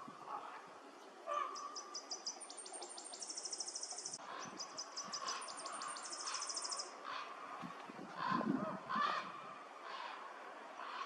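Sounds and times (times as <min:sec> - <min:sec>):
songbird trilling song: 0:01.0 - 0:07.0.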